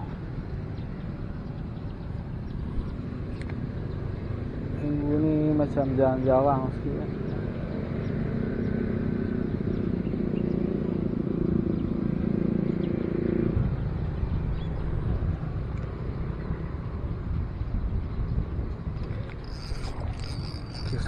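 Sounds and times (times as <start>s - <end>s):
wind rumbling on microphone: 0.0s - 21.0s
low droning hum: 13.5s - 21.0s.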